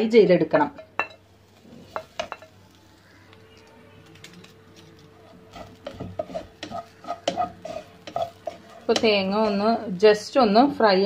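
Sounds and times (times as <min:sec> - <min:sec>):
wooden spatula scraping a pot: 0:05.2 - 0:09.9.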